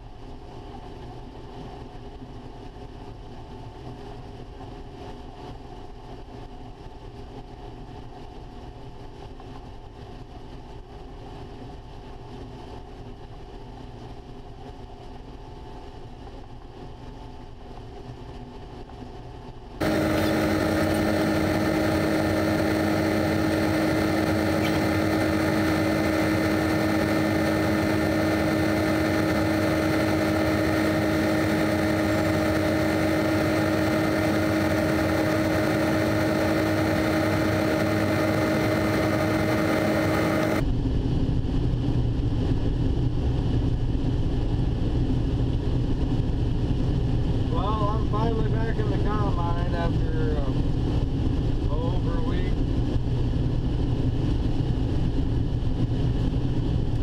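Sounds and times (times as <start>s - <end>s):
combine harvester running: 19.8s - 40.6s.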